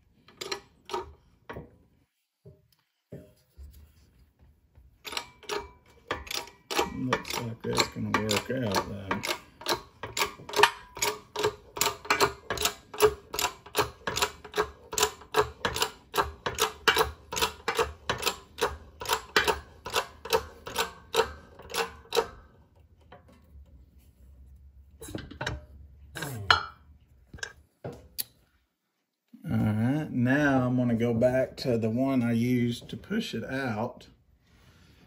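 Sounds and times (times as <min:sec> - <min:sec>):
hydraulic press pump clicking: 0:05.0 - 0:23.1.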